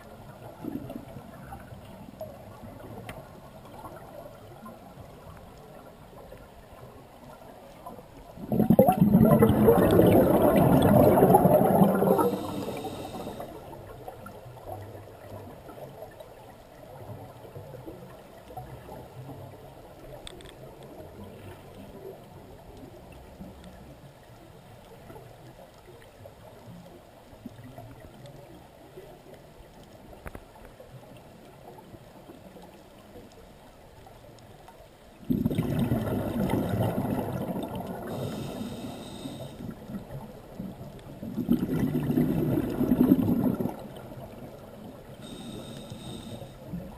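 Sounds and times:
faint underwater noise: 0:00.0 - 0:46.9
air bubbling underwater: 0:08.4 - 0:13.4, 0:35.3 - 0:38.6, 0:41.2 - 0:44.2.

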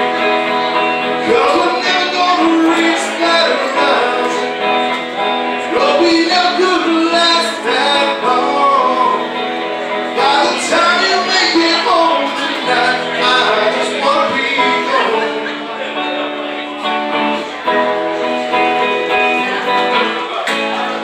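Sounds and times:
guitar chords: 0:00.0 - 0:21.0
man singing into microphone: 0:00.8 - 0:16.3.

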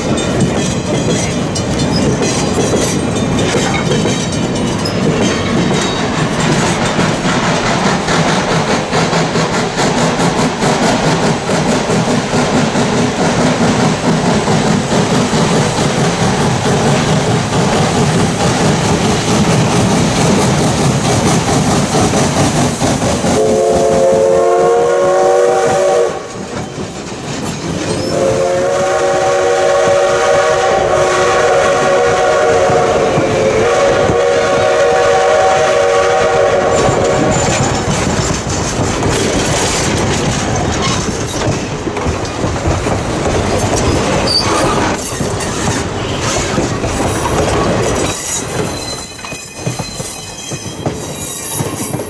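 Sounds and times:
steam locomotive passing: 0:00.0 - 0:52.0
train wheels clicking over rail joints: 0:00.0 - 0:52.0
steam whistle blasts: 0:23.4 - 0:26.4, 0:28.0 - 0:37.4.

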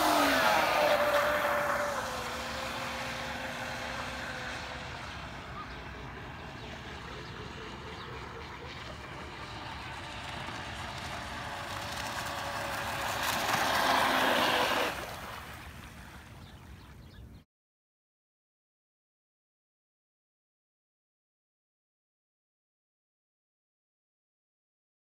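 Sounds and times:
electric motor whining: 0:00.0 - 0:15.2
water hissing under hull: 0:12.8 - 0:15.6.

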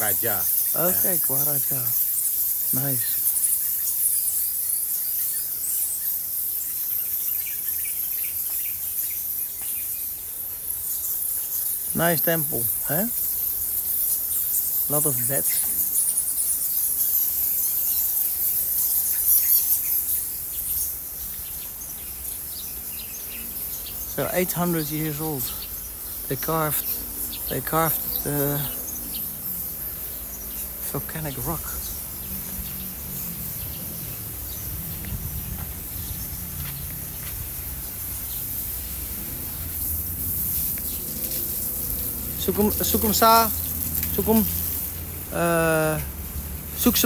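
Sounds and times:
faint chirps: 0:00.0 - 0:46.1
bats squeaking and chattering: 0:00.0 - 0:47.0
steady high hiss: 0:00.0 - 0:47.0
wind rumble on microphone: 0:33.6 - 0:37.7.

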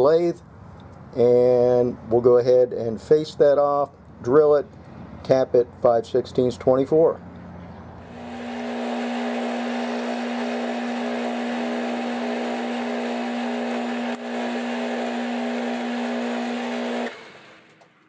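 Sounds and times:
lathe motor hum: 0:08.0 - 0:17.8
lathe spinning down: 0:08.0 - 0:17.8.

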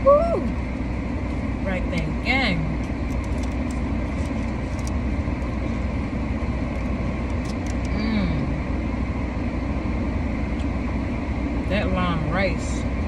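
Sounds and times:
car engine and fan hum: 0:00.0 - 0:13.0
foil wrapper crinkling: 0:02.9 - 0:05.0.

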